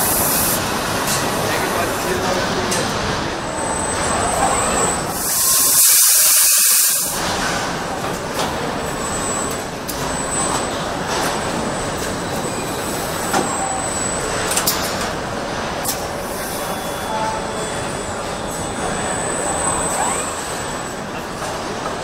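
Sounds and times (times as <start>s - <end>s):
loud hiss: 5.1s - 7.2s.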